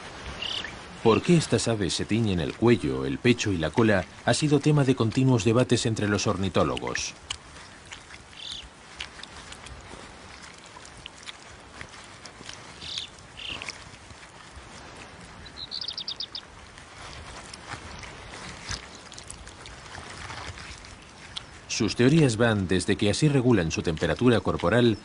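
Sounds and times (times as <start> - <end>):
rustling and scratching in soil: 0.0 - 25.0
high bird chirps: 0.4 - 0.8, 8.4 - 8.6, 12.8 - 13.6, 15.4 - 16.4
high bird trill: 0.4 - 0.8, 8.3 - 8.7, 12.8 - 13.7, 15.4 - 16.4.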